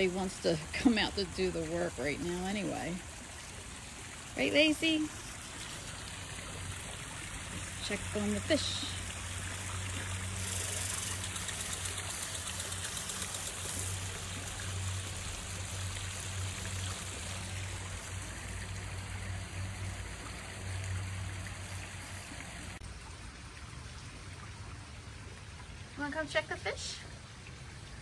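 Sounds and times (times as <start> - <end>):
pond waterfall splashing: 0.0 - 28.0.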